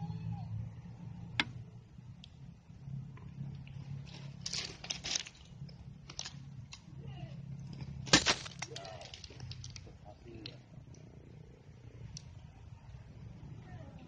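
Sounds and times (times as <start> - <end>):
steady low hum: 0.0 - 14.0
crunching scraping noises: 3.1 - 10.6.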